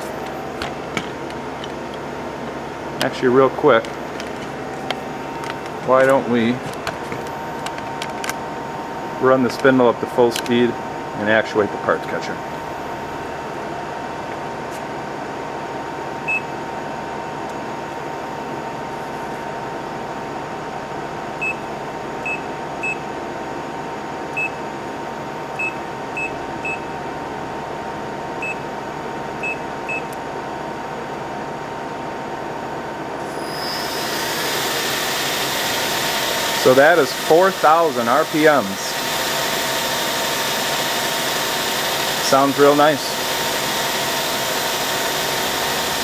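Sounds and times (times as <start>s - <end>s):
lathe humming: 33.2s - 46.0s
spindle whir spinning up: 33.2s - 46.0s.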